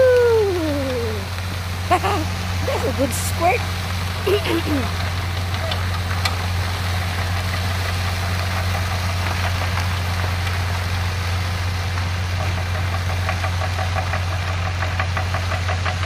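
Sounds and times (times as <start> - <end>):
vehicle engine running: 0.0 - 16.0
fast ticking clatter: 12.4 - 16.0.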